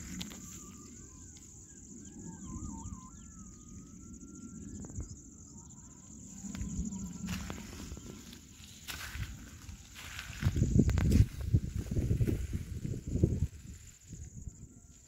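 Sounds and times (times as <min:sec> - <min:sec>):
high-pitched insect drone: 0:00.0 - 0:15.0
bird singing warbling phrases: 0:00.6 - 0:04.8.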